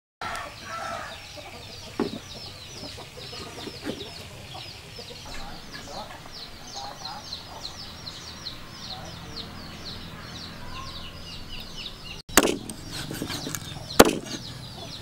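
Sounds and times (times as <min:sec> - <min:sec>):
chickens clucking: 0:00.2 - 0:15.0
chicks peeping: 0:00.2 - 0:15.0
dull knocks: 0:02.0 - 0:02.3, 0:12.3 - 0:13.4, 0:14.0 - 0:14.4.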